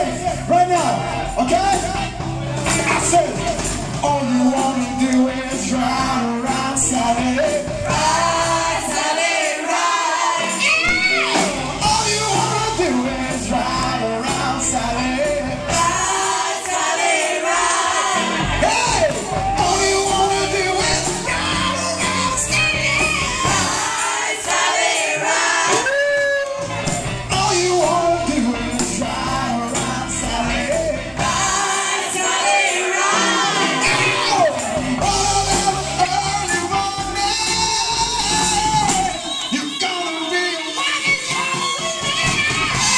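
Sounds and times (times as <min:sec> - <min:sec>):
live band playing: 0:00.0 - 0:42.9
man and women singing: 0:04.0 - 0:25.8, 0:27.3 - 0:39.2.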